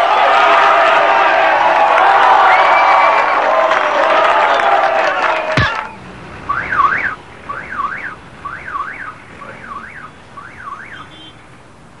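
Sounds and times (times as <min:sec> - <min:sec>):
electronic warbling alarm tone: 0:06.5 - 0:11.0.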